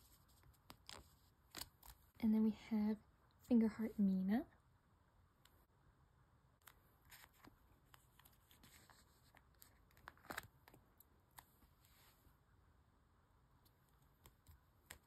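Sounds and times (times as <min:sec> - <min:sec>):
plastic sleeves rustling: 0:06.6 - 0:12.3.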